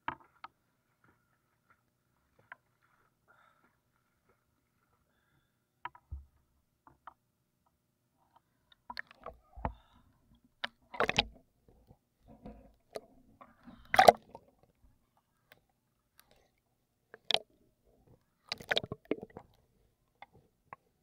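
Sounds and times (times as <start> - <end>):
water splashing against camera: 10.6 - 11.4, 12.4 - 14.6, 18.5 - 19.6.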